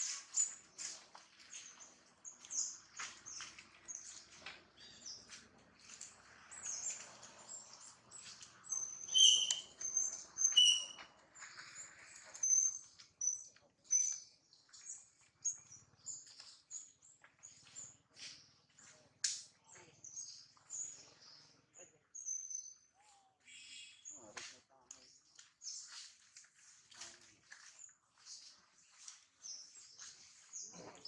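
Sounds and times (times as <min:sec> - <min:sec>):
baby monkey squeaking: 0:09.1 - 0:09.6, 0:10.4 - 0:11.0.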